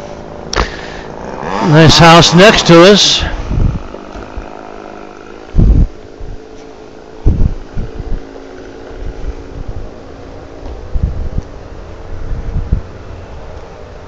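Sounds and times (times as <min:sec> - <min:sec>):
steady mechanical hum: 0:00.0 - 0:14.0
wind buffeting the microphone: 0:03.2 - 0:04.6, 0:05.5 - 0:06.6, 0:07.2 - 0:14.0.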